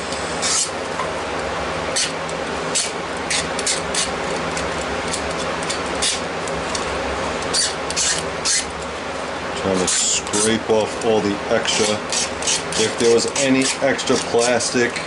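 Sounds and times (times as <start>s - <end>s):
shop fans running: 0.0s - 15.0s
knife scraping plastic edges: 7.5s - 8.7s, 9.7s - 15.0s.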